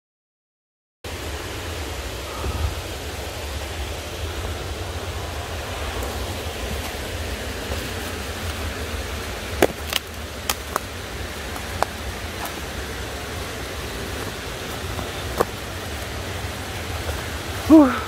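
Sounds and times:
low rumble: 0:01.1 - 0:17.7
rushing background noise: 0:01.1 - 0:18.0
footsteps on loose rock: 0:09.5 - 0:12.8, 0:14.1 - 0:16.2.

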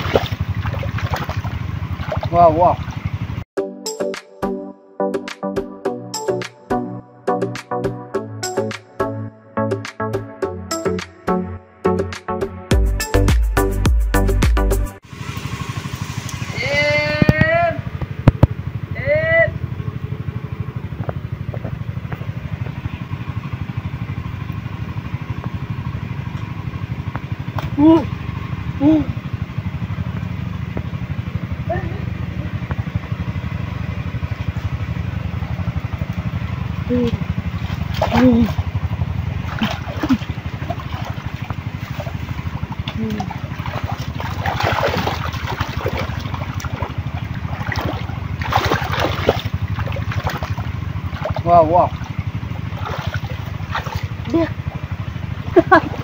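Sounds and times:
hands splashing in muddy water: 0:00.0 - 0:03.1, 0:37.1 - 0:54.8
engine chugging steadily: 0:00.0 - 0:03.5, 0:12.8 - 0:56.0
motor running: 0:15.0 - 0:56.0.

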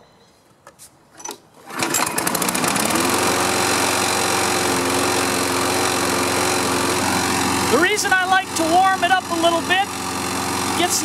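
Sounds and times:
lawn mower engine starting: 0:01.2 - 0:11.0.

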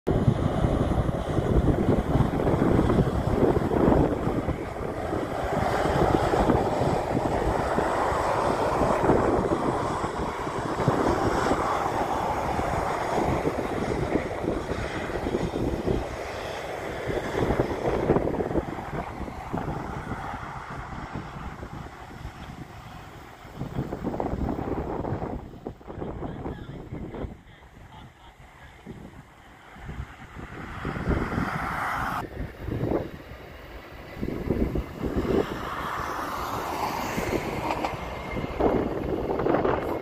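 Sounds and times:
jet engines at takeoff power: 0:00.1 - 0:40.0.

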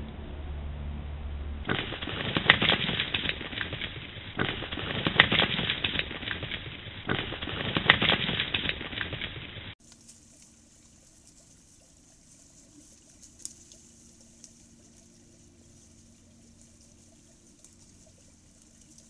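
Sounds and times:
animals rustling dry leaves: 0:04.7 - 0:19.0.

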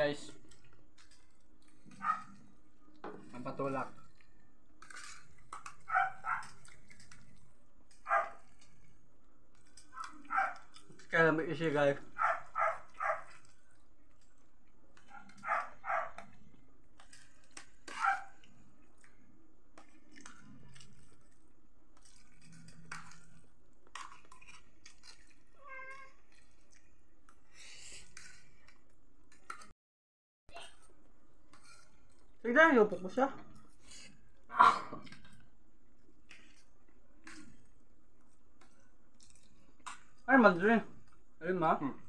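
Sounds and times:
chewing and slurping noodles: 0:00.3 - 0:11.1, 0:12.3 - 0:29.6, 0:33.5 - 0:40.2
dog barking: 0:02.0 - 0:02.3, 0:05.9 - 0:06.6, 0:08.0 - 0:08.4, 0:10.0 - 0:10.7, 0:12.1 - 0:13.4, 0:15.1 - 0:16.2, 0:17.9 - 0:18.4.

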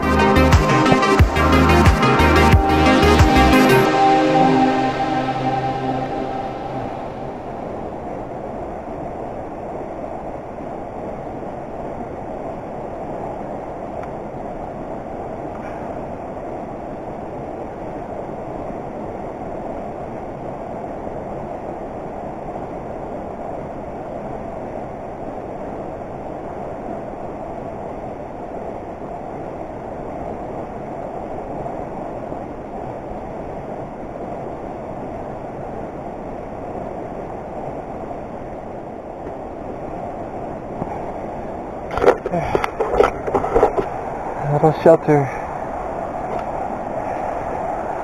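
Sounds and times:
creek rushing: 0:00.0 - 0:48.0.

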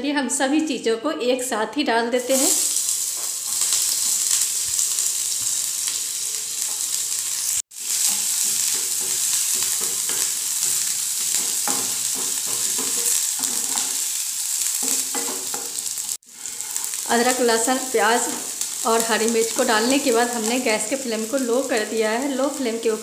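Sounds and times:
vegetables sizzling in hot oil: 0:02.2 - 0:23.0
wooden spatula scraping a pan: 0:06.6 - 0:17.0.

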